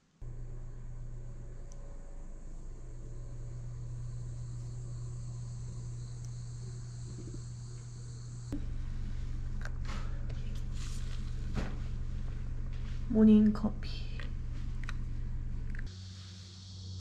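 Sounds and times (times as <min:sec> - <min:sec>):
low hum: 0:00.2 - 0:17.0
insects chirring: 0:00.4 - 0:08.6.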